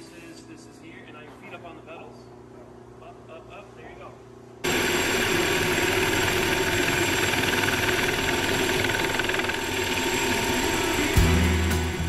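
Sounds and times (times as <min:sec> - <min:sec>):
helicopter engine and rotor drone: 0:04.6 - 0:12.0.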